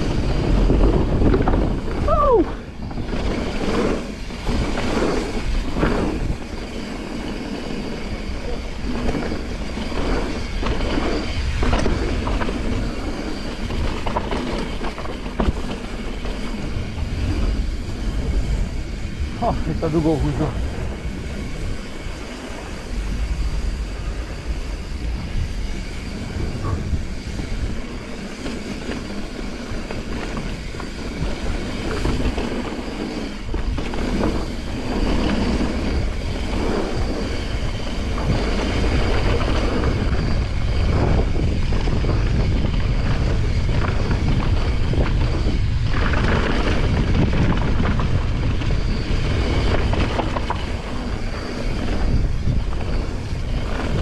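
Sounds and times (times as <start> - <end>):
bike rattling over bumps: 0.0 - 54.0
tyres on gravel and dirt: 0.0 - 54.0
tyres rolling over wooden boardwalk: 0.0 - 54.0
wind rumbling on microphone: 0.0 - 54.0.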